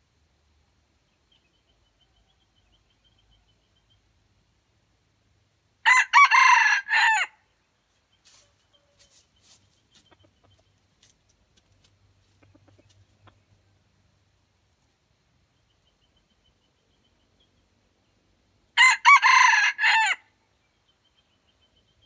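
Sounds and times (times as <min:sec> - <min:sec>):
rooster crowing: 0:05.8 - 0:07.4, 0:18.8 - 0:20.2.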